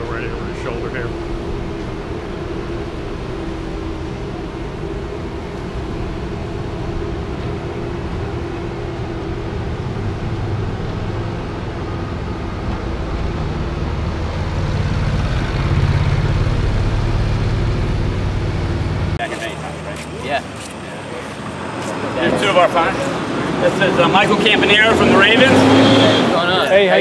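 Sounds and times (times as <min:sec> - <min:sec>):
utility vehicle engine hum: 0:00.0 - 0:27.0.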